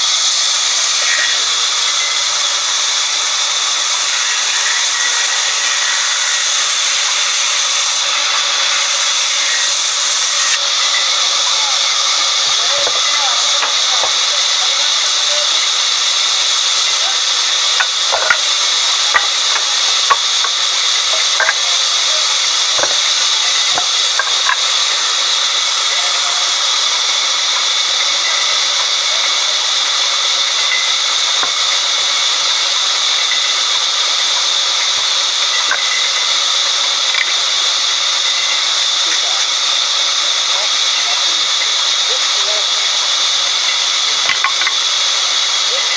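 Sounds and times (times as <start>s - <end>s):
band saw cutting log: 0.0s - 45.9s.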